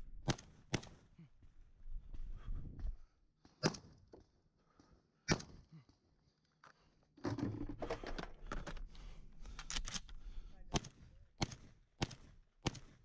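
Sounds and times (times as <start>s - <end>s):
rattling and handling noise: 6.6s - 10.2s.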